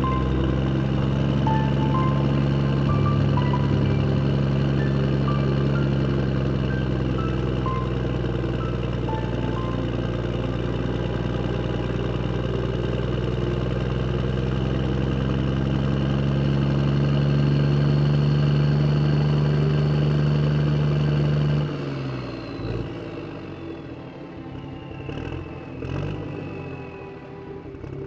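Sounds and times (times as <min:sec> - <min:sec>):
motorbike engine running: 0:00.0 - 0:21.4.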